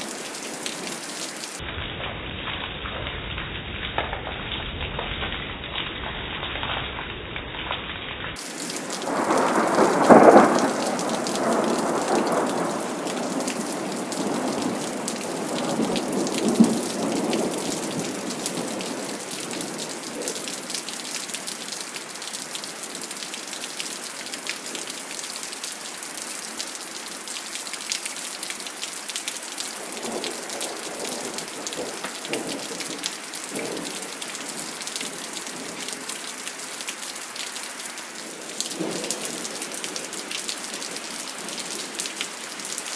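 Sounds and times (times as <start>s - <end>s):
heavy rain falling: 0.0s - 42.9s
sharp thunder crack: 8.4s - 19.0s
thunder clap rolling: 8.4s - 20.5s, 29.9s - 34.1s
faint thunder rumbles: 8.4s - 21.4s, 29.8s - 36.1s, 38.2s - 42.0s.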